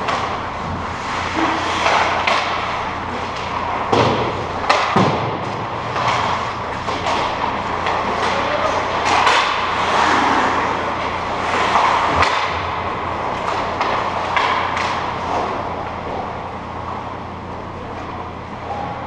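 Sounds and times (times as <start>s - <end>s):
steady low hum: 0.0s - 19.0s
skate blades scraping ice: 0.1s - 3.7s, 5.8s - 12.4s
sticks and puck knocking: 1.8s - 9.8s, 11.5s - 12.7s, 13.4s - 15.5s.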